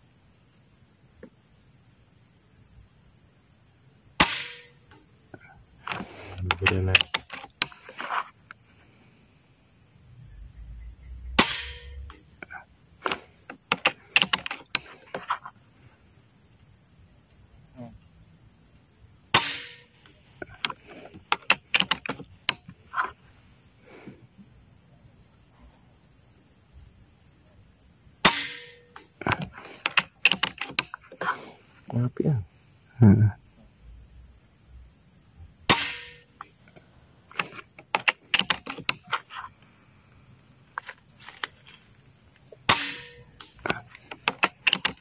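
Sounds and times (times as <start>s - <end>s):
air rifle shot: 4.2s - 4.8s, 11.3s - 12.2s, 19.3s - 19.9s, 28.2s - 28.9s, 35.7s - 36.2s, 42.7s - 43.2s
rifle action clicking: 13.7s - 14.9s, 29.0s - 31.0s, 37.3s - 39.1s, 43.4s - 45.0s.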